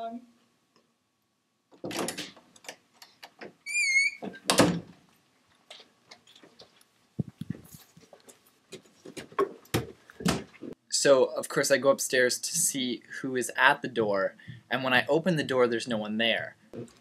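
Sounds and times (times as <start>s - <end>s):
door hinge squeak: 3.6s - 4.5s.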